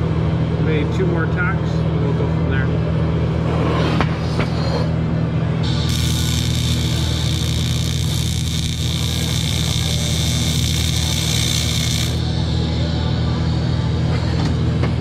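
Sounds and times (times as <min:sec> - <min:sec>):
low hum: 0:02.7 - 0:15.0
welding arc hissing and buzzing: 0:05.6 - 0:13.7.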